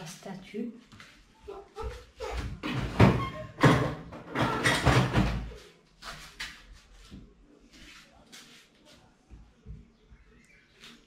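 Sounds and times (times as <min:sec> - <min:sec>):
kitchen utensils knocking and scraping: 0:02.3 - 0:05.6.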